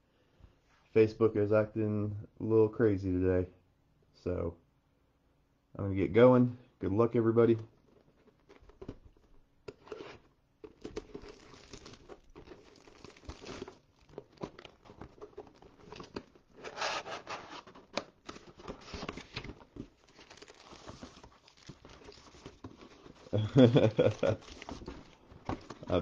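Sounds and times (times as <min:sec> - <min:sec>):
cardboard lid opening: 0:07.7 - 0:26.0
foil packs rustling: 0:07.7 - 0:26.0
shrink wrap tearing and crinkling: 0:09.7 - 0:26.0.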